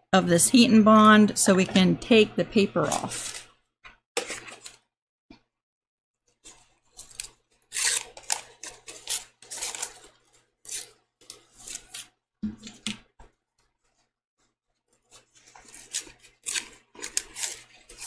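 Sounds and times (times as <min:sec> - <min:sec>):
paper backing scratching and peeling: 0:13.8 - 0:18.0.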